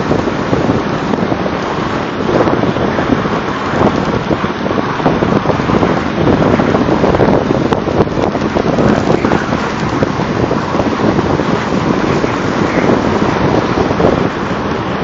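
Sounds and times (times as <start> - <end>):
truck engine running: 0.0 - 15.0
wind on microphone: 0.0 - 15.0
drag scraping through snow: 8.4 - 14.7.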